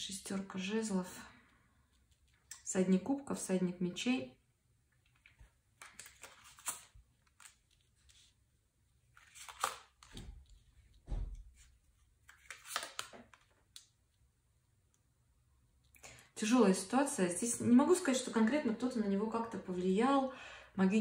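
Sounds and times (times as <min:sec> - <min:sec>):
cards sliding and tapping: 0:05.2 - 0:08.2, 0:09.2 - 0:10.3, 0:11.6 - 0:13.5.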